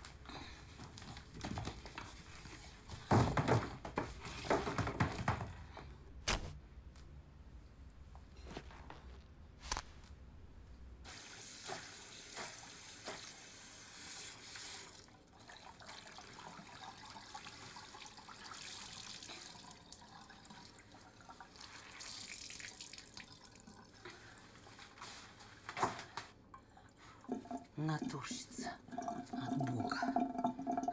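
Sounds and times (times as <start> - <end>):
tap water running into sink: 11.1 - 24.3, 27.3 - 30.9.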